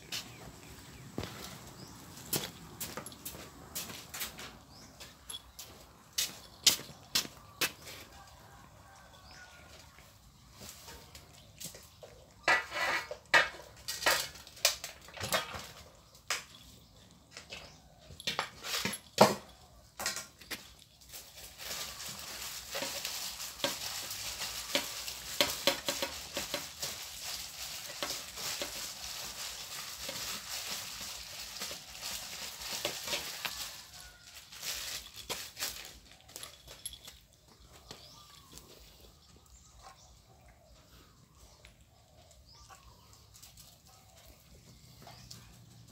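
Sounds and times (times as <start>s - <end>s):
cats crunching dry food: 20.3s - 39.5s.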